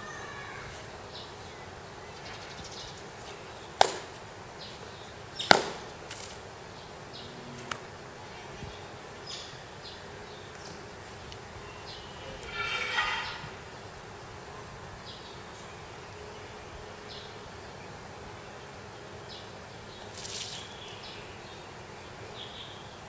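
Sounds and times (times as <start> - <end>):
sharp uniform cracks: 3.8 - 4.2, 5.4 - 6.4.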